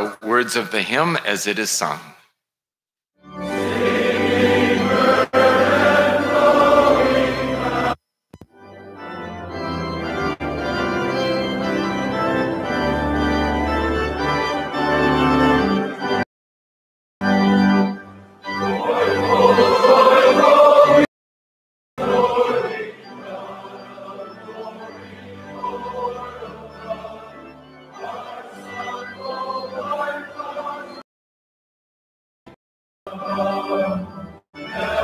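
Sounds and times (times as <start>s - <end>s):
organ playing a hymn: 3.2s - 8.0s, 8.6s - 16.2s, 17.2s - 21.1s, 22.0s - 31.0s, 33.1s - 35.0s.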